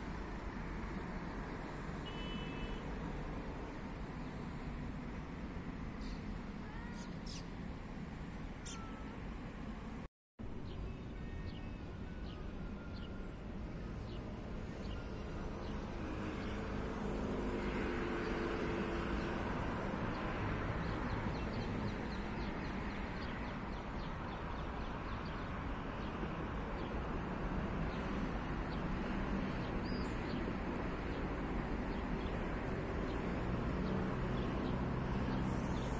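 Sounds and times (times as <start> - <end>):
distant traffic rumble: 0.0 - 35.9
bird chirps: 6.8 - 7.5, 8.6 - 9.0.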